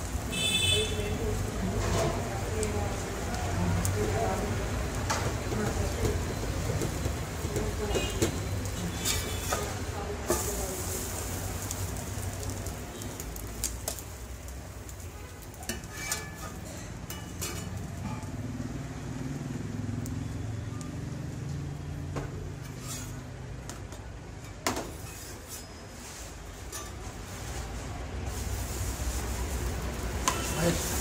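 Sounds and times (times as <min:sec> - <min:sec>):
spatula scraping on griddle: 0:06.9 - 0:12.7, 0:15.3 - 0:18.4, 0:22.4 - 0:23.7, 0:24.3 - 0:31.0.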